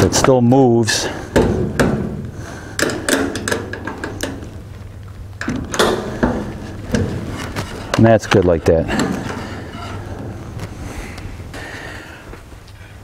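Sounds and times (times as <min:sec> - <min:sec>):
metallic clicks and clatter: 0:02.8 - 0:04.7.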